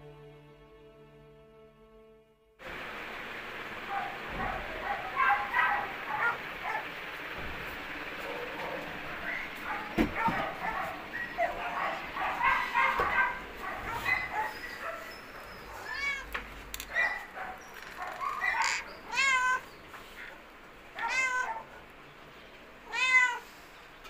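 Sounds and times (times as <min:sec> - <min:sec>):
cats meowing: 0:04.4 - 0:06.9, 0:08.2 - 0:21.9, 0:22.8 - 0:23.7.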